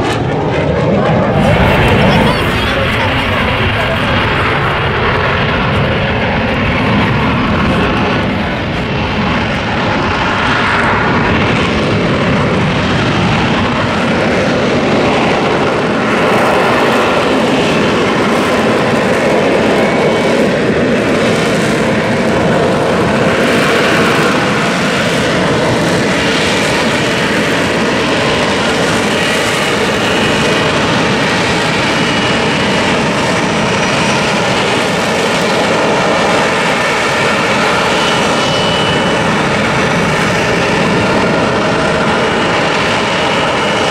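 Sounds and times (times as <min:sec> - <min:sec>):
jet engine roaring: 0:00.0 - 0:43.9
faint high whistle: 0:37.8 - 0:39.3.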